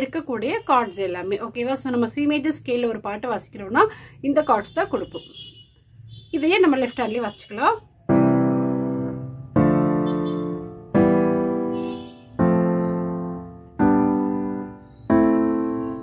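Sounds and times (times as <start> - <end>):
piano block chords: 8.1 - 16.0.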